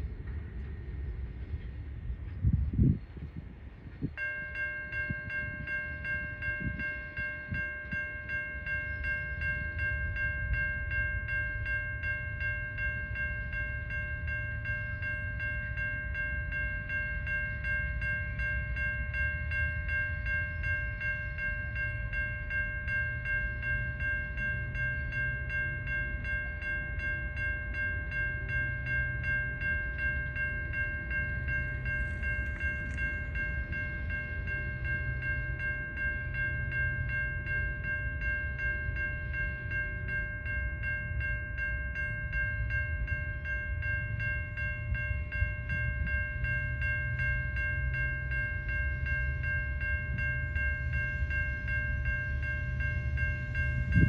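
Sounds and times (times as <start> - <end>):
low rumble: 0.0 - 4.2
level crossing warning bell ringing: 4.0 - 54.0.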